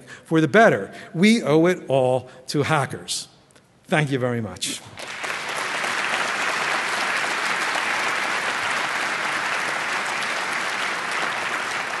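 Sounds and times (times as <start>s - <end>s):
audience applauding: 4.9s - 12.0s.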